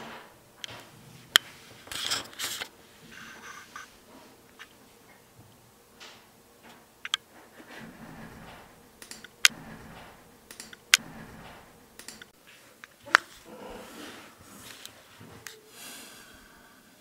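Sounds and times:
plastic rustling: 0.8s - 4.8s.

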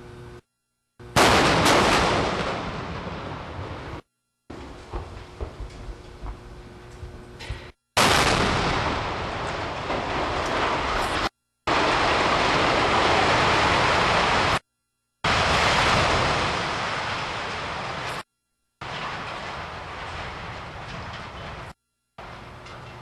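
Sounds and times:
collapsing steel and debris: 8.0s - 14.6s, 15.3s - 18.2s, 18.8s - 23.0s.

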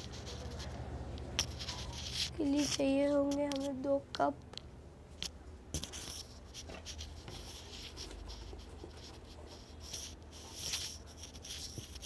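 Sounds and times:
scratchy rubbing and handling: 0.0s - 3.8s, 5.8s - 12.0s.

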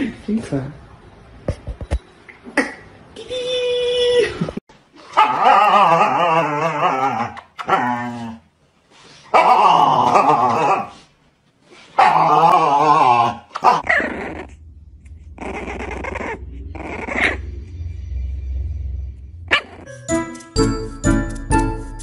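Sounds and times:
puppy crying: 5.0s - 8.2s, 9.3s - 11.0s, 12.0s - 14.6s, 15.4s - 17.4s
dog howling: 5.2s - 8.0s, 12.0s - 17.7s
low rumble: 13.8s - 20.0s.

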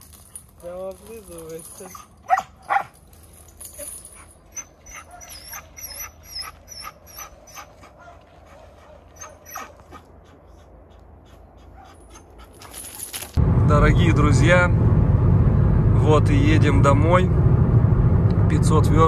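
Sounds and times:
dog panting: 7.3s - 13.0s.

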